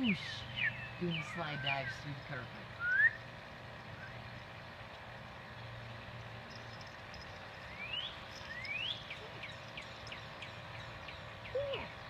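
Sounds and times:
rising bird whistle: 0:02.8 - 0:03.2.

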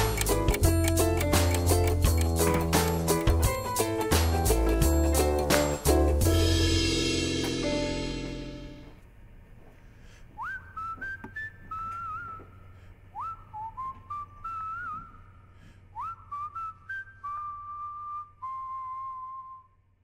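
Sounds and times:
person whistling a melody: 0:10.4 - 0:19.8.

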